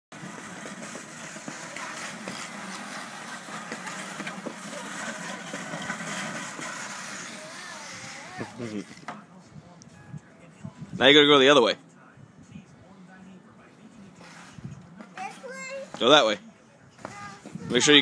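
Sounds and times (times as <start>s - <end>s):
skates and crate scraping on ice: 0.2s - 9.2s, 14.2s - 16.1s.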